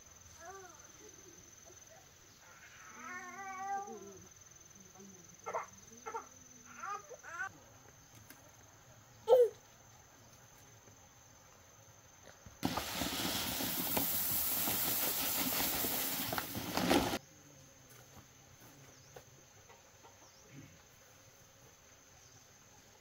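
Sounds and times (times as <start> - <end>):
rice husks pouring into basket: 12.6 - 17.2.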